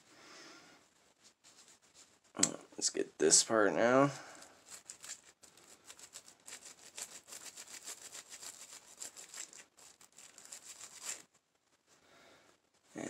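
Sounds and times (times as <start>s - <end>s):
small brush scrubbing metal: 4.5s - 11.3s.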